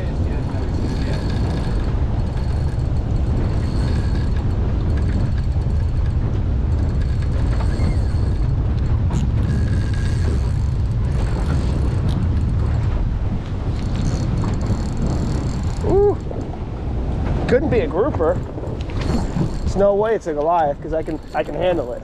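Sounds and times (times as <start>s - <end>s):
wind buffeting microphone: 0.0s - 22.0s
fishing reel cranking: 0.3s - 6.2s, 6.8s - 12.6s, 13.8s - 16.3s, 18.8s - 20.0s.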